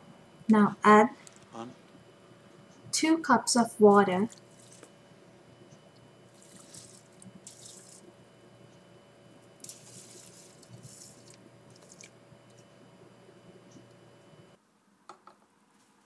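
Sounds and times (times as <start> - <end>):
water pouring onto rice: 6.3 - 8.0, 9.6 - 12.1.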